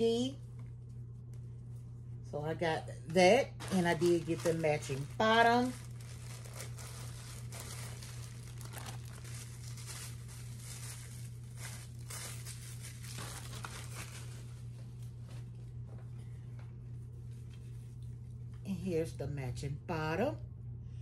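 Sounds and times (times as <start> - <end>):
steady low hum: 0.0 - 21.0
plastic packaging crinkling: 3.4 - 15.2.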